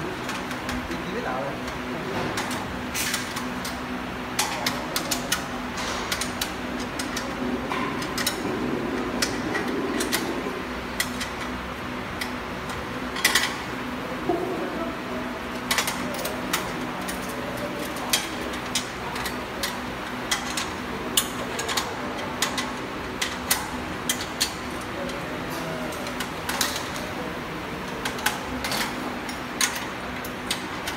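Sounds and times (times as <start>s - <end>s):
steady low hum: 0.0s - 30.9s
spanner clicking against metal bolts: 4.4s - 7.2s, 15.5s - 24.6s, 28.0s - 30.9s.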